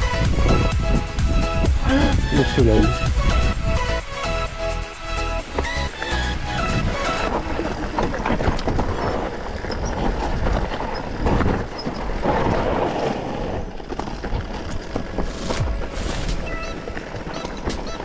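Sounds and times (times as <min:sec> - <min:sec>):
bike rattling over bumps: 0:00.0 - 0:18.0
tyres crunching over dirt and stones: 0:05.3 - 0:18.0.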